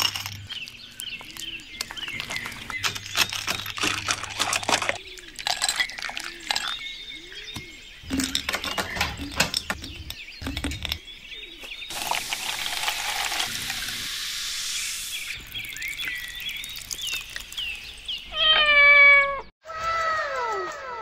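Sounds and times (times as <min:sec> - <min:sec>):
birds chirping: 0:00.0 - 0:21.0
liquid pouring: 0:03.1 - 0:06.8, 0:11.9 - 0:18.2
cat meowing: 0:18.3 - 0:19.5.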